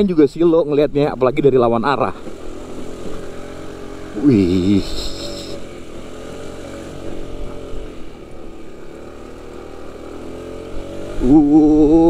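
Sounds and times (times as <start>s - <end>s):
scooter engine climbing: 0.9s - 12.0s.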